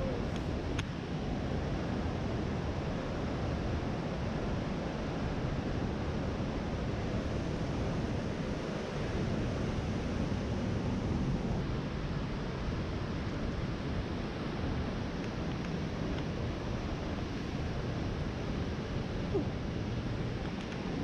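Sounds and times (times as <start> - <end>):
wind on microphone: 0.0 - 21.0.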